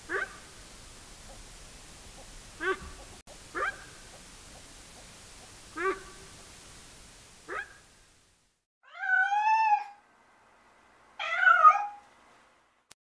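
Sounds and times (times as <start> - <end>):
cat meowing: 8.8 - 10.0, 11.2 - 12.0.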